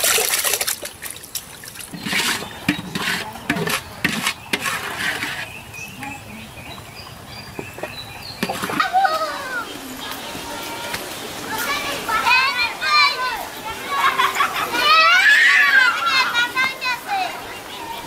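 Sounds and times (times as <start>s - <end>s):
hands swishing rice in water: 0.0s - 5.5s.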